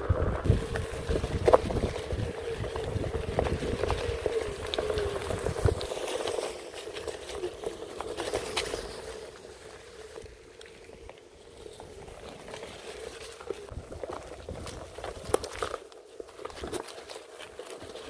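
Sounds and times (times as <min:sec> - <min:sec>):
wind rumble on microphone: 0:00.0 - 0:05.9
electric motor whine: 0:00.0 - 0:10.4
tyres crackling over leaves: 0:00.0 - 0:18.0.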